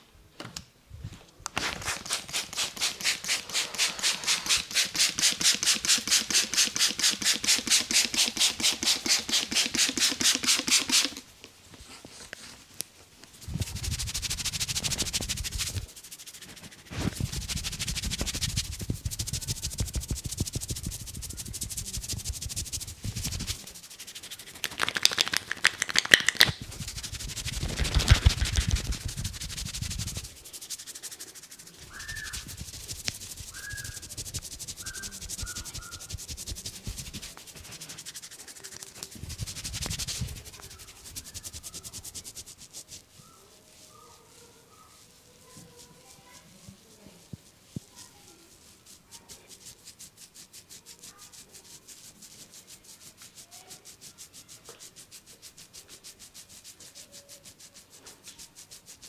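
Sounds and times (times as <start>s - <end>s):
palms rubbing over hair: 1.1s - 59.0s
hand slaps: 24.6s - 26.7s.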